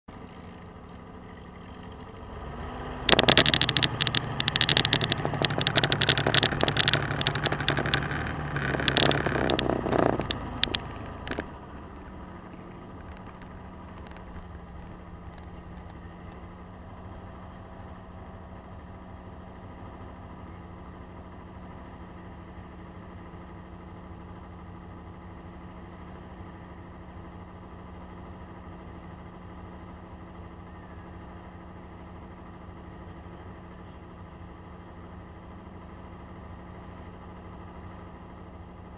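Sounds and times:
truck engine revving: 0:00.1 - 0:22.2.

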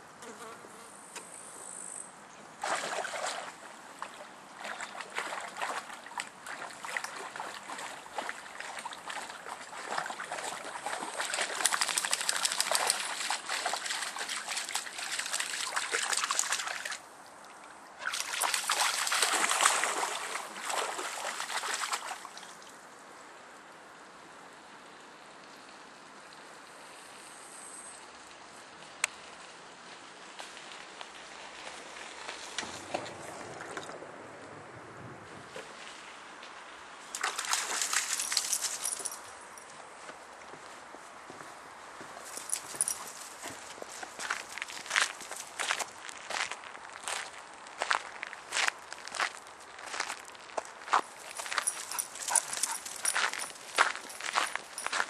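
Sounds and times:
faint water trickle: 0:02.5 - 0:23.2, 0:42.1 - 0:55.0
dog splashing through water: 0:02.6 - 0:17.0, 0:18.0 - 0:22.6, 0:37.1 - 0:39.2, 0:51.0 - 0:55.0.

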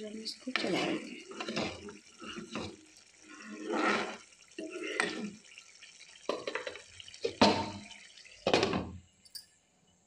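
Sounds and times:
ladle scraping thick gravy: 0:00.4 - 0:05.4.

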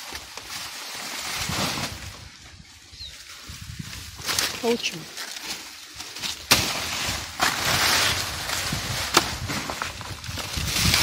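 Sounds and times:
leaves and brush rustling: 0:00.0 - 0:11.0
brush hook chopping banana stalk: 0:06.4 - 0:06.9.

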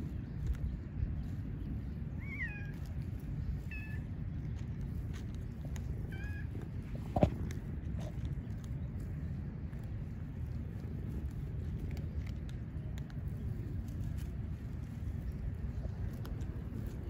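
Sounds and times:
low rumble: 0:00.0 - 0:17.0
cat meowing: 0:02.2 - 0:02.8, 0:03.7 - 0:04.0, 0:06.1 - 0:06.5.

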